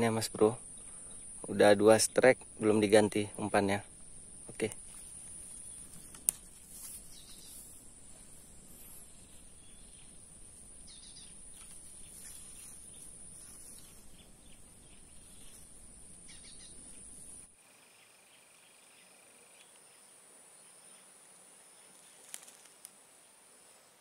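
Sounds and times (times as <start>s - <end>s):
bird chirps: 0.0s - 21.1s
insect drone: 0.0s - 24.0s.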